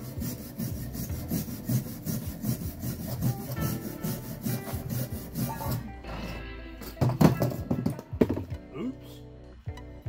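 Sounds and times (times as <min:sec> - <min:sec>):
wire brush scraping metal: 0:00.0 - 0:05.9.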